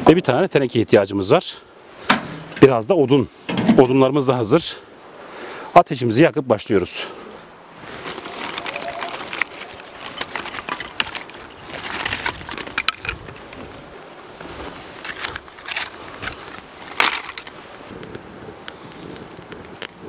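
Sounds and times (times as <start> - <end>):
crunching in snow: 7.8 - 19.3
sticks clattering and snapping: 8.0 - 13.9, 14.8 - 19.1
sharp cracks: 15.0 - 20.0.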